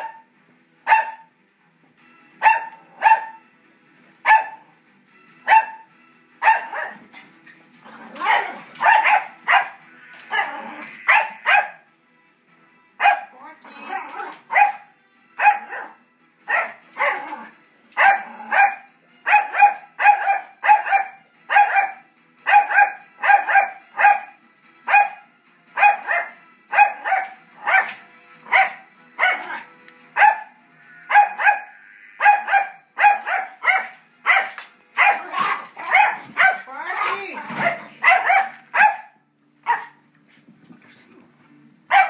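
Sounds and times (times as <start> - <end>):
small dog barking: 0.9 - 1.3, 2.4 - 3.4, 4.3 - 4.6, 5.5 - 5.8, 6.4 - 7.0, 8.2 - 11.8, 13.0 - 13.3, 13.9 - 17.4, 18.0 - 24.3, 24.9 - 25.2, 25.8 - 29.6, 30.2 - 30.5, 31.1 - 40.0.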